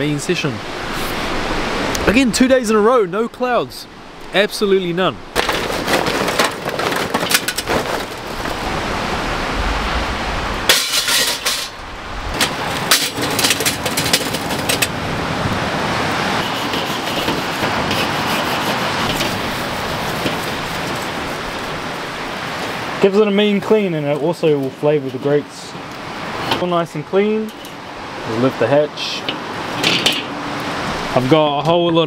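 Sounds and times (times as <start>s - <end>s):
charcoal clattering: 5.3s - 8.9s, 10.7s - 15.0s, 16.4s - 21.9s, 29.3s - 30.4s
grill brush scrubbing grate: 16.4s - 22.1s.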